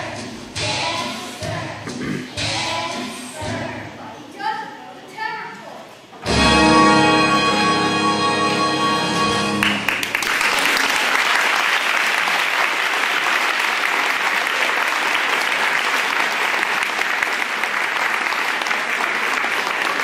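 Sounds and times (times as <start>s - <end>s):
chorus singing: 0.0s - 3.8s
audience applauding: 9.6s - 20.0s.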